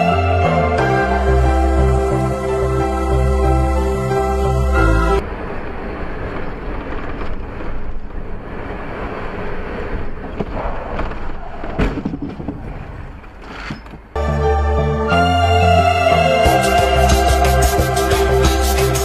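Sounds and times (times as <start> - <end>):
music: 0.0 - 5.2, 14.2 - 19.0
road and wind noise: 3.2 - 14.2.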